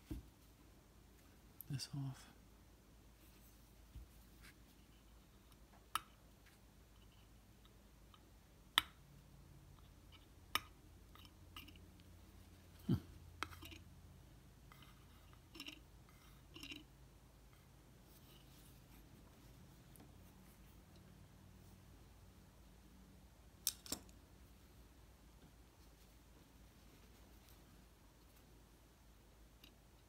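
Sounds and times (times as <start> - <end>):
soft rustles: 3.1 - 5.4, 18.0 - 20.9, 25.5 - 28.6.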